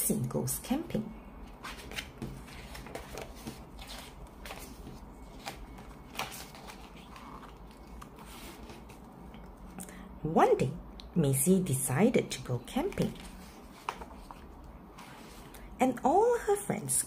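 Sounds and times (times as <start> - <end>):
paper pages rustling: 1.5 - 9.1, 12.9 - 15.5.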